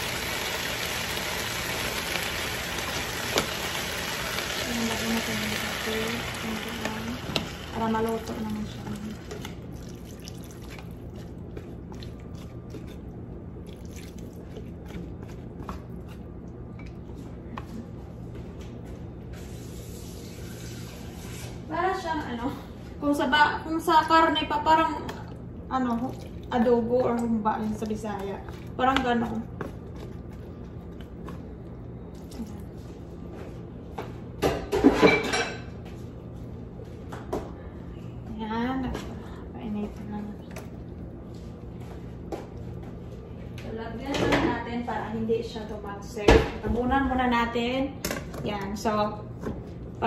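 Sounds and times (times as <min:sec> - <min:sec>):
pan crackling and popping: 0:00.0 - 0:11.0
low steady hum: 0:00.0 - 0:50.0.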